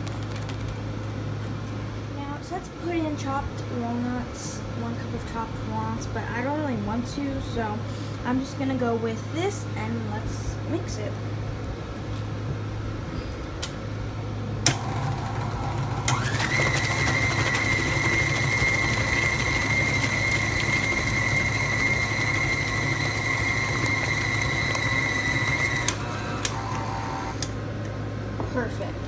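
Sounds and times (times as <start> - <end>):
stand mixer motor whining: 14.7 - 27.5.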